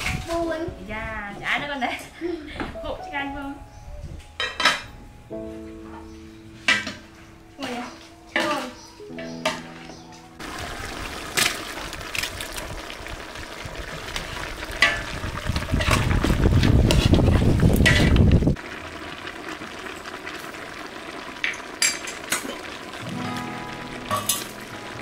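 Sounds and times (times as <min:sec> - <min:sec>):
meat sizzling in a pot: 0:10.4 - 0:25.0
deep rumble: 0:12.0 - 0:18.6.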